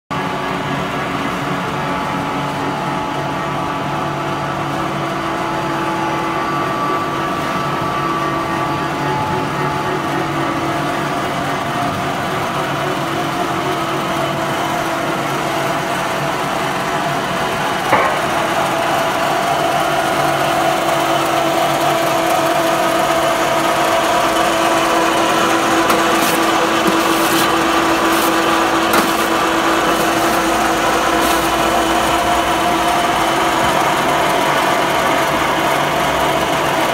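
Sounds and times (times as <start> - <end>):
machine motors droning: 0.2 - 36.9
sharp knock: 17.9 - 18.6.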